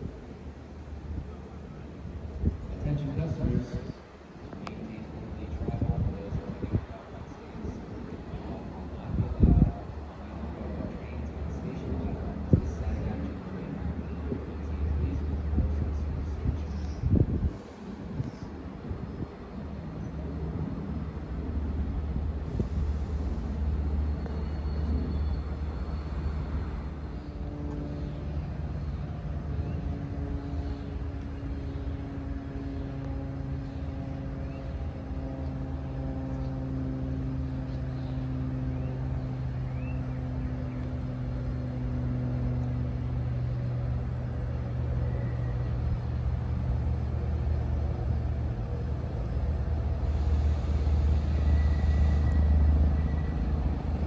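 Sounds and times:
diesel locomotive engine rumbling: 0:00.0 - 0:54.0
droning tone: 0:49.9 - 0:54.0.

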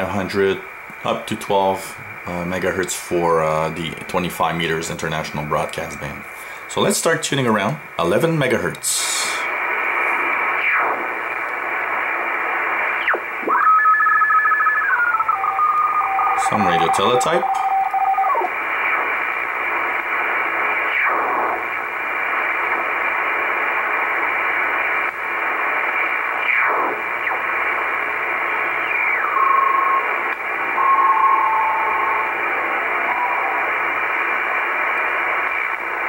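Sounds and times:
radio band-noise hiss: 0:00.0 - 0:36.0
brief steady tones: 0:13.1 - 0:18.6, 0:29.1 - 0:34.6.

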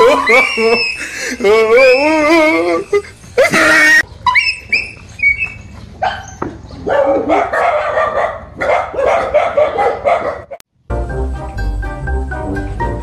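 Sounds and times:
dog barking and yelping: 0:03.6 - 0:10.6.

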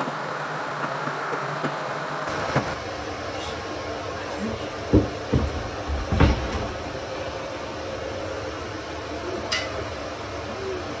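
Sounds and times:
steady background hum: 0:00.0 - 0:11.0
knocks and thuds on wooden cabinet: 0:04.9 - 0:06.8.

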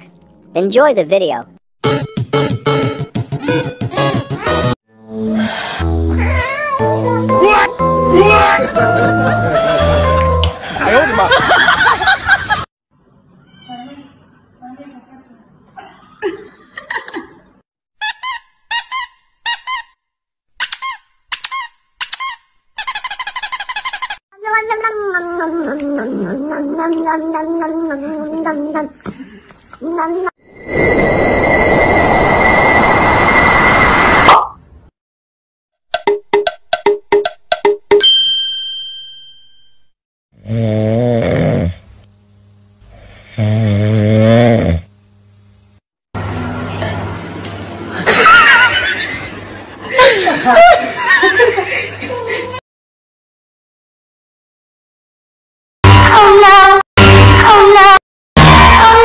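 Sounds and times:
bright ding: 0:38.0 - 0:39.9
cat snoring: 0:40.4 - 0:41.8, 0:42.9 - 0:44.9.

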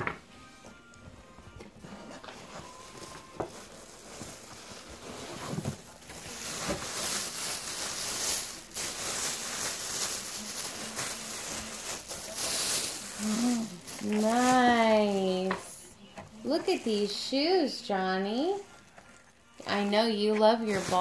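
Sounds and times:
plastic bag crinkling: 0:01.8 - 0:21.0.

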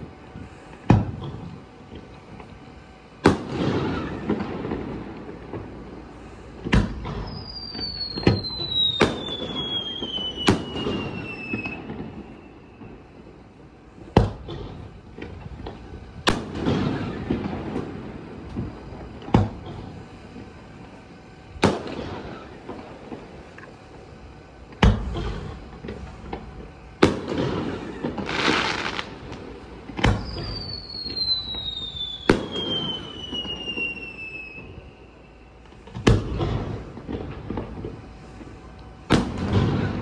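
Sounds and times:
descending firework whistle: 0:03.2 - 0:40.0
firework shells bursting: 0:06.5 - 0:13.1, 0:24.7 - 0:34.8.

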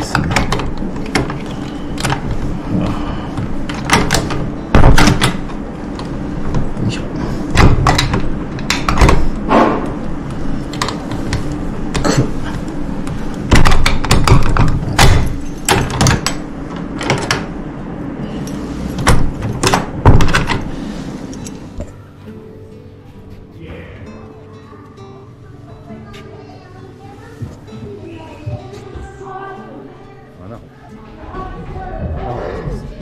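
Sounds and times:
key rattling in door lock: 0:13.5 - 0:17.4.

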